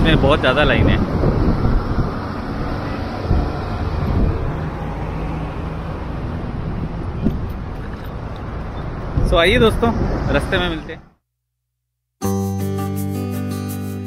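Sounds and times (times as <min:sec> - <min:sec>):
traffic rumble: 0:00.0 - 0:11.2.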